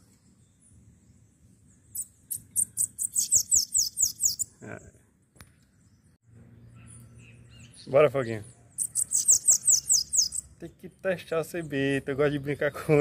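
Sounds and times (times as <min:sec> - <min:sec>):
bird singing high falling notes: 0:00.0 - 0:04.6, 0:05.8 - 0:10.8.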